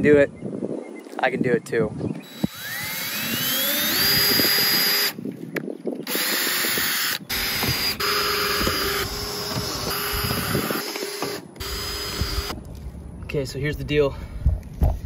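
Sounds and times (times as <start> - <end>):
cordless drill whining: 2.2 - 5.2, 6.0 - 12.6.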